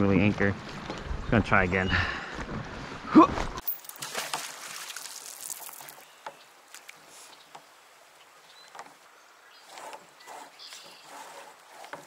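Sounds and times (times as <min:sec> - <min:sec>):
water sloshing around a kayak: 0:03.9 - 0:12.0.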